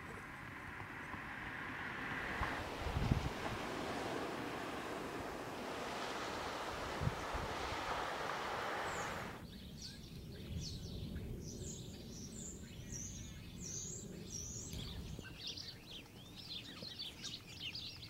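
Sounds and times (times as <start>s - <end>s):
low steady rumble: 0.0s - 9.4s
surf noise: 0.0s - 9.4s
small birds chirping: 0.0s - 18.0s.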